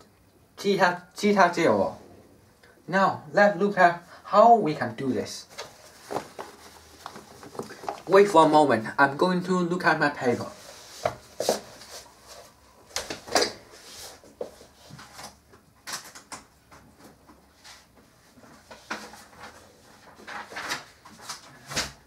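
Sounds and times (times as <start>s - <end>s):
handling rustles clicks and knocks: 5.5s - 8.6s.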